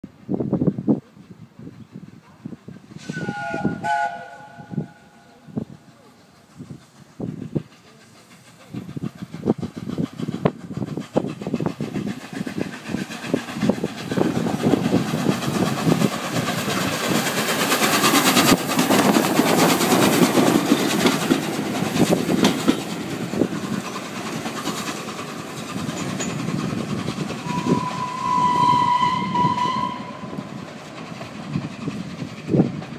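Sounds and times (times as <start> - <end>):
steam locomotive exhaust beats: 0.1 - 32.9
train whistle: 3.0 - 5.6, 27.4 - 30.4
wheels clattering over rail joints: 7.8 - 28.3.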